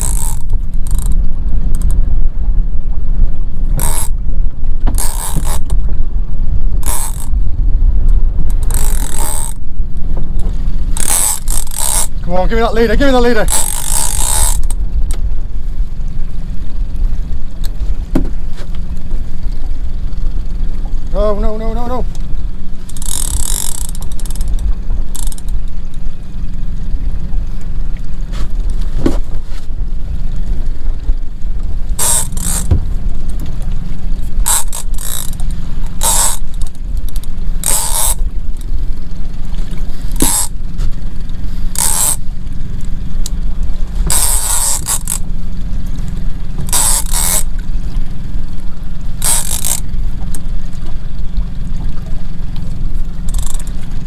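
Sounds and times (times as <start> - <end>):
fishing reel bursts: 0.0 - 1.2, 3.8 - 4.2, 5.0 - 5.7, 6.8 - 7.4, 8.6 - 9.6, 11.0 - 14.8, 22.8 - 25.6, 31.9 - 32.7, 34.4 - 38.7, 40.1 - 40.6, 41.7 - 42.2, 44.0 - 45.3, 46.7 - 47.5, 49.2 - 50.5, 53.2 - 53.8
low rumble: 0.0 - 54.0.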